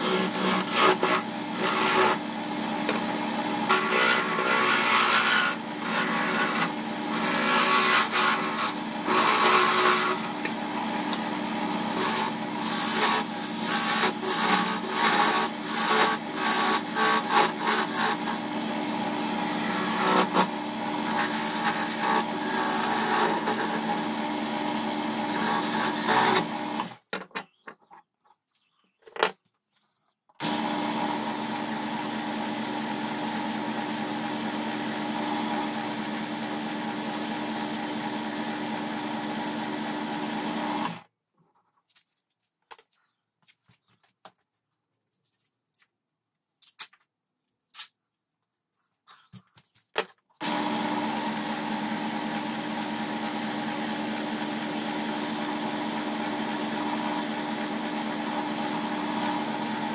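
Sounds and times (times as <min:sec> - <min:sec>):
chisel scraping spinning wood: 0:00.0 - 0:27.0, 0:30.4 - 0:41.0, 0:50.4 - 0:59.9
wood lathe humming: 0:00.0 - 0:27.0, 0:30.4 - 0:41.0, 0:50.4 - 0:59.9.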